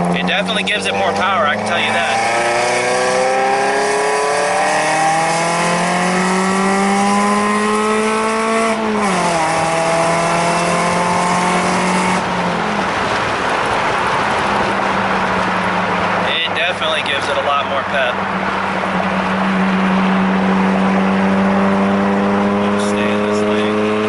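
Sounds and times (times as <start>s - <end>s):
car engine accelerating: 0.0s - 24.0s
tyre and road noise: 0.0s - 24.0s.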